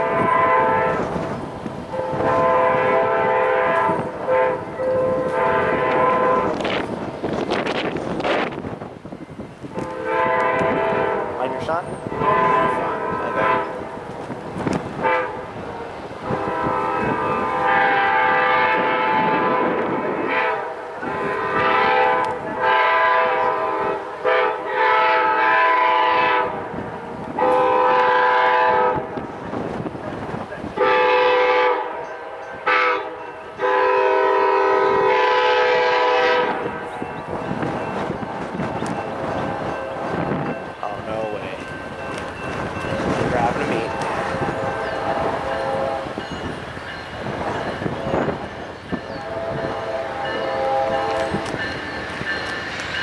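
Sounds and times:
locomotive air horn blasts: 0.0s - 1.2s, 1.9s - 6.8s, 9.7s - 14.0s, 15.0s - 26.8s, 27.4s - 29.2s, 30.8s - 37.1s, 43.9s - 46.3s, 49.1s - 51.8s
rumble of oncoming train: 0.0s - 53.0s.

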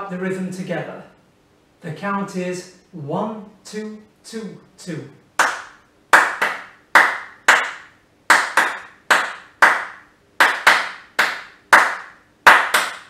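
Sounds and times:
hand claps in rhythm: 5.4s - 13.0s.

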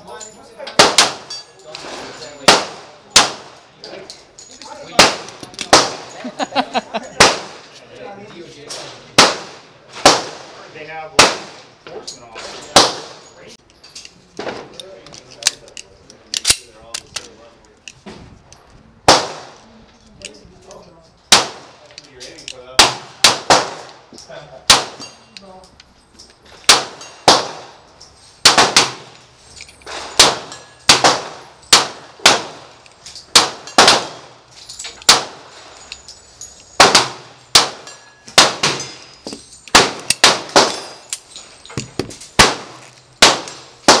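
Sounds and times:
pistol shots: 0.8s - 1.3s, 2.4s - 3.6s, 5.0s - 6.1s, 7.2s - 7.6s, 9.2s - 10.5s, 11.2s - 11.7s, 12.8s - 13.2s, 19.1s - 19.6s, 21.3s - 21.8s, 22.8s - 23.9s, 24.7s - 25.0s, 26.7s - 27.8s, 28.4s - 29.1s, 30.1s - 32.7s, 33.3s - 34.4s, 35.0s - 35.5s, 36.8s - 39.0s, 39.7s - 40.9s, 42.3s - 44.0s.

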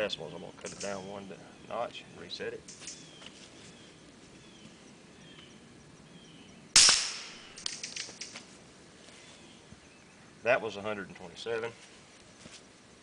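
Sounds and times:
suppressed gunshot: 6.8s - 7.9s.

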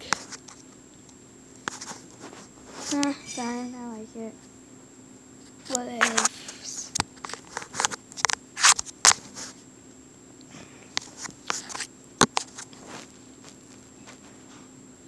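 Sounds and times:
faint steady hum: 0.0s - 15.0s
device handling rustles and clicks: 5.7s - 6.3s, 6.9s - 9.5s, 10.9s - 14.4s.

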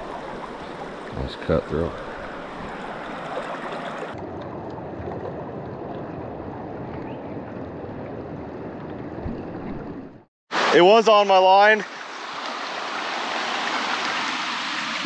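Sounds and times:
water rushing over stones: 10.5s - 15.0s.

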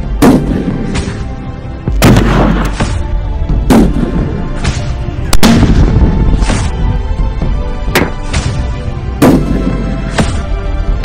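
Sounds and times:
background music with steady beat: 0.0s - 11.0s
rifle shots booming: 0.1s - 1.1s, 1.9s - 3.0s, 3.6s - 4.5s, 5.3s - 6.5s, 9.2s - 10.0s.

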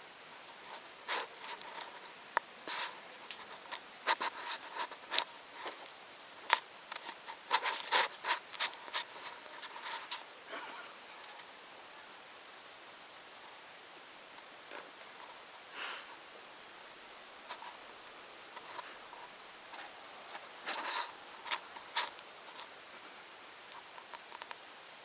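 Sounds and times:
rustling and scraping: 0.0s - 11.6s, 17.4s - 24.7s.

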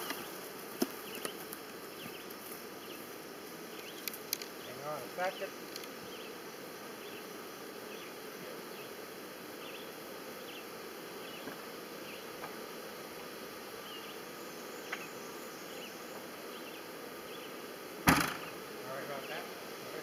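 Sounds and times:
bees buzzing: 0.0s - 20.0s.

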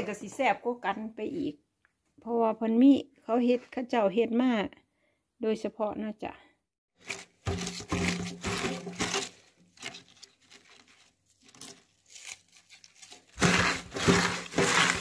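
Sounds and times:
leaves crunching and rustling: 7.0s - 15.0s.

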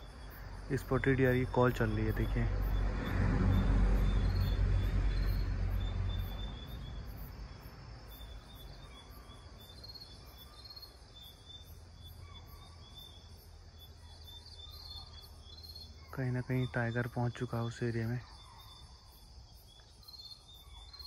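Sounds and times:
insects trilling and buzzing: 0.0s - 21.0s
low rumble: 1.4s - 7.6s.

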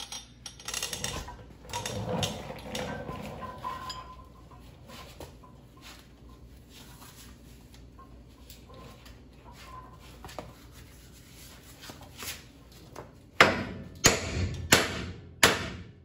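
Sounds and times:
objects clattering and clinking: 0.0s - 6.0s.

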